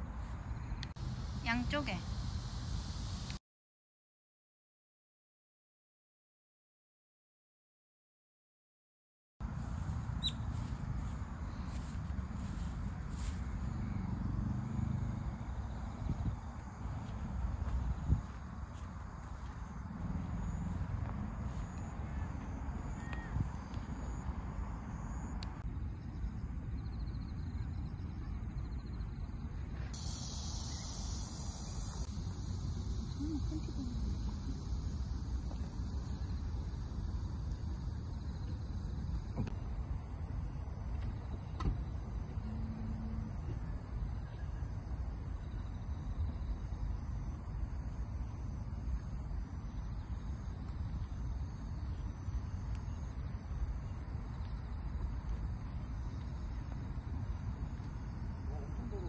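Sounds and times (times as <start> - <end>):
insects chirping: 0.0 - 3.4, 9.4 - 59.0
light tick: 0.8 - 1.0
wind buffeting microphone: 15.4 - 21.5
wind on microphone: 15.8 - 18.7
high insect buzz: 29.9 - 37.0.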